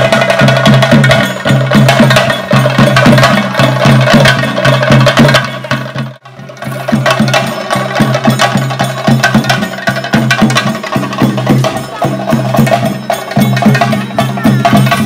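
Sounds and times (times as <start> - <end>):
drums beaten with sticks: 0.0 - 15.0.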